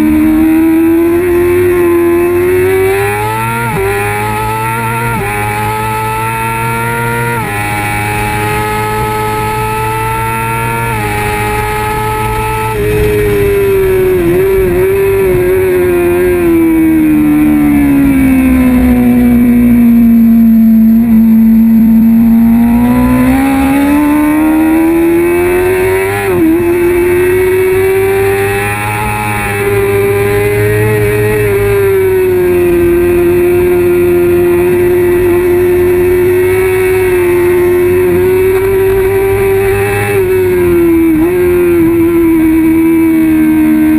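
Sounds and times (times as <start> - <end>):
motorcycle engine at racing revs: 0.0 - 43.9.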